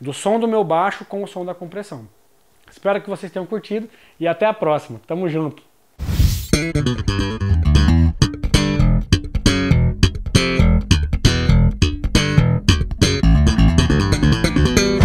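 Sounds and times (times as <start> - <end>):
electric bass guitar playing: 6.5 - 15.0.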